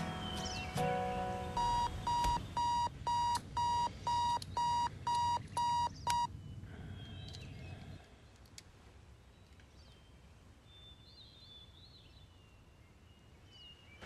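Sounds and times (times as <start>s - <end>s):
alarm clock beeping: 1.6s - 6.3s.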